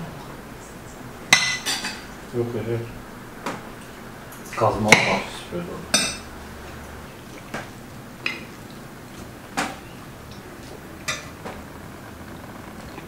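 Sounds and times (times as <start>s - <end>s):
cutlery clinking on plates: 1.3s - 2.0s.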